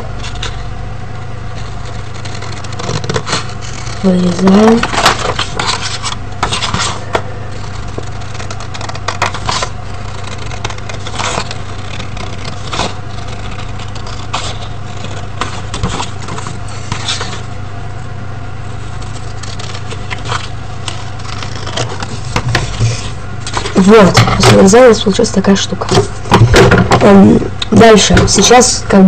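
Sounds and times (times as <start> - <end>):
low hum: 0.0 - 29.0
paper rustling: 1.5 - 17.5, 18.6 - 24.7
scissors cutting paper: 1.5 - 17.5, 18.8 - 24.8.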